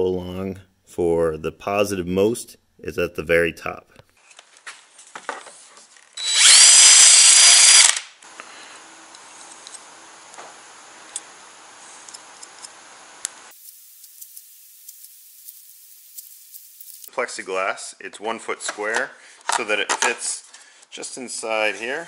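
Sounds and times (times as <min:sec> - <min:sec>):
cordless drill motor whine: 0:06.2 - 0:08.0.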